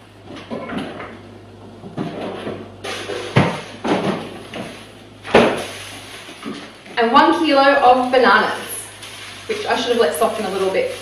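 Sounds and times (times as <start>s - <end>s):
refrigerator door opening: 1.8s - 5.7s.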